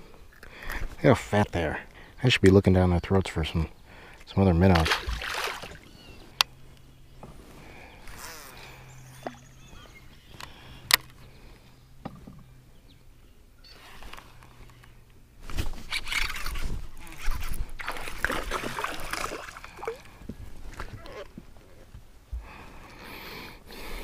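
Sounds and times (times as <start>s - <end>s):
fish splashing in water: 4.8s - 5.9s, 16.1s - 20.1s.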